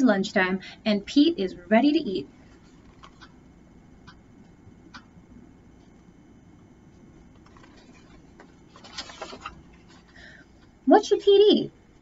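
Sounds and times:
book pages rustling and turning: 2.5s - 3.3s, 7.3s - 10.2s.

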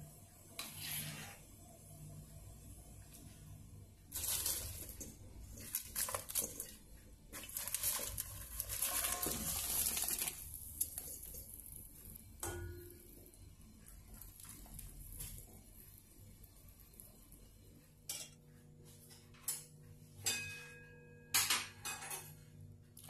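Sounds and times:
metal clang ringing: 20.2s - 22.3s.

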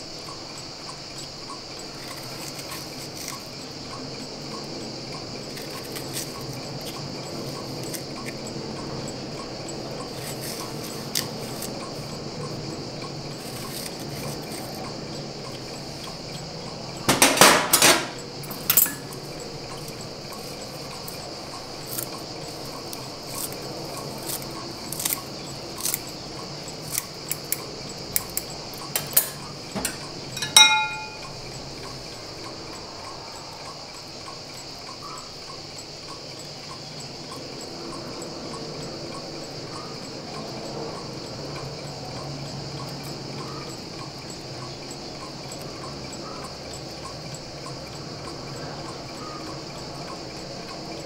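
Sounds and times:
high insect drone: 0.0s - 51.0s
scissors snipping herbs: 1.9s - 3.5s, 5.5s - 8.4s, 10.1s - 12.1s, 13.4s - 15.0s, 19.8s - 31.3s
metal clink: 17.2s - 19.1s, 29.0s - 31.3s.

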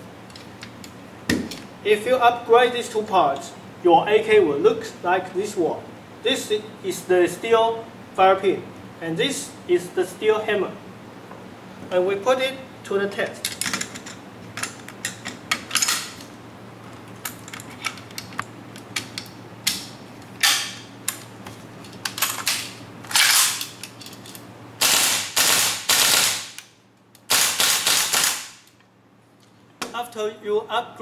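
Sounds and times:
airsoft rifle full-auto bursts: 27.3s - 28.6s.

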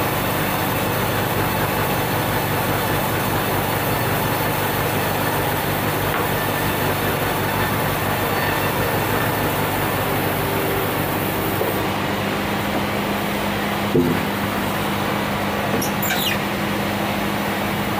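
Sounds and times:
log carriage rolling on rails: 0.1s - 11.8s.

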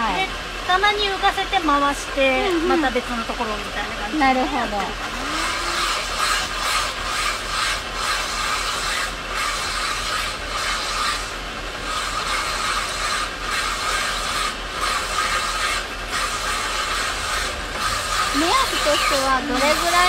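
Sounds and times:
low machine hum: 0.0s - 20.0s
stone grinding on wet dish: 5.2s - 20.0s.

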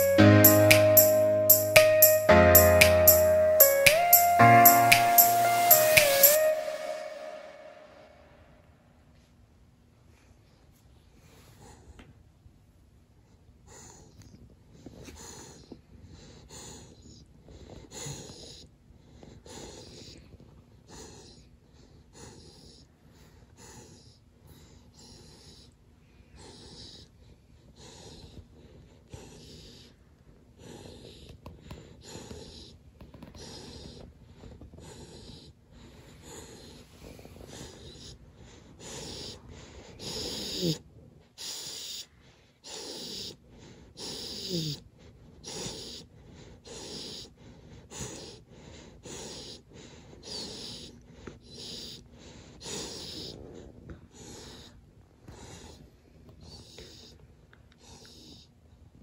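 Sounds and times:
puppy snoring: 13.2s - 59.0s.

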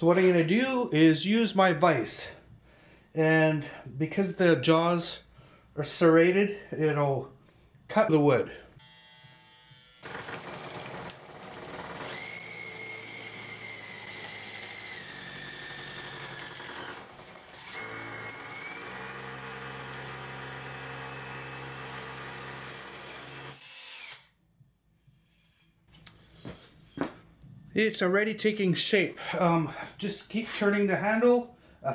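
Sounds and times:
cordless drill motor whine: 8.8s - 10.3s, 12.0s - 24.3s.

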